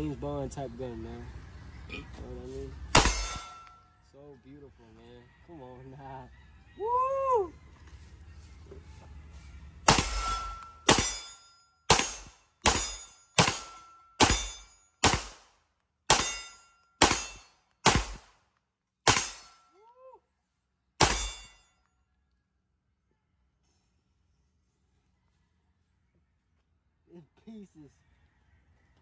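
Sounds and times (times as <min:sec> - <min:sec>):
pistol shots: 0:02.9 - 0:03.7, 0:09.9 - 0:15.5, 0:16.1 - 0:18.4, 0:19.1 - 0:19.6, 0:21.0 - 0:21.5.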